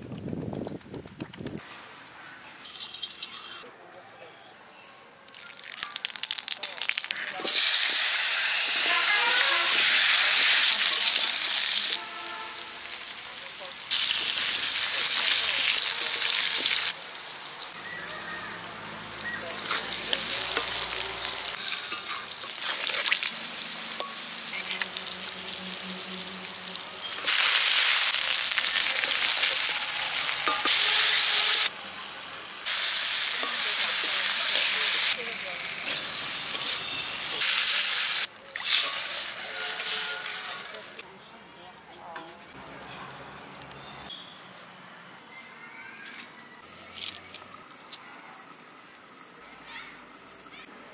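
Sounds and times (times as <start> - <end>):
potatoes sizzling in hot oil: 2.1 - 3.6, 5.3 - 41.0
metal spatula scraping pan: 21.5 - 23.1.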